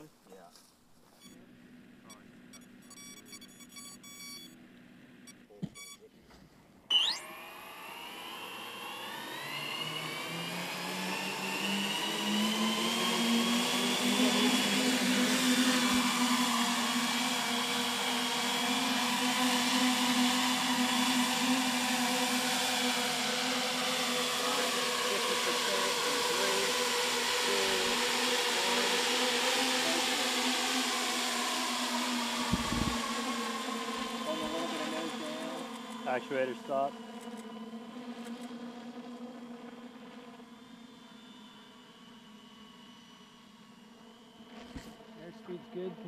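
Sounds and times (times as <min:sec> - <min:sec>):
drone motors whining: 0:01.0 - 0:06.1, 0:06.9 - 0:46.0
electronic beeping: 0:01.1 - 0:01.4, 0:02.0 - 0:04.6, 0:05.2 - 0:06.1, 0:06.9 - 0:07.3.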